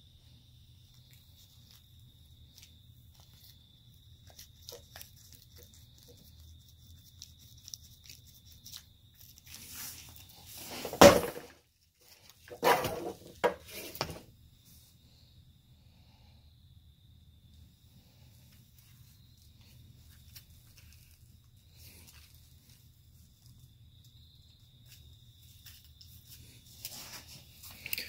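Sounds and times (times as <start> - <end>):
faint steady hum: 0.0 - 28.0
rustling: 0.9 - 14.9, 18.2 - 23.7, 24.5 - 28.0
solid thunk: 10.8 - 11.5.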